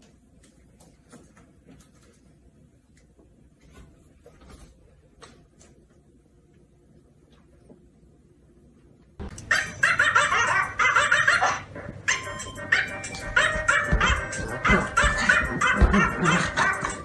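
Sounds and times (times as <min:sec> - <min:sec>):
dog barking and yipping: 0:09.4 - 0:17.0
music playing: 0:11.6 - 0:17.0.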